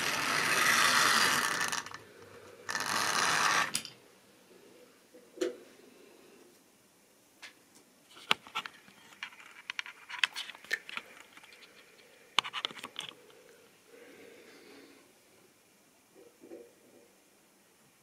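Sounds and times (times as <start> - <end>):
faint motor hum: 0.0 - 5.0
light clicks taps and scrapes: 7.4 - 13.3.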